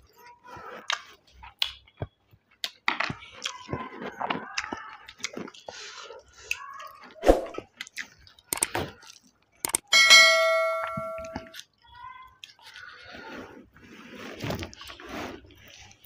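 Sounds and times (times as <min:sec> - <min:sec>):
notification bell ding: 0:09.8 - 0:11.5.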